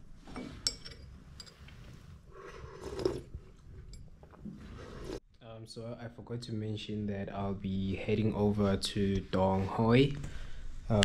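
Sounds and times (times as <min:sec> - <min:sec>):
person sipping coffee: 0:01.6 - 0:05.2.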